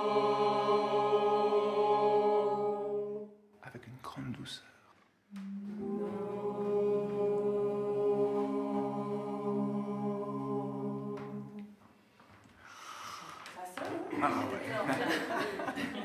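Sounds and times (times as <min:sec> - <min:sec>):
group of voices singing chord: 0:00.0 - 0:03.4, 0:05.3 - 0:11.7.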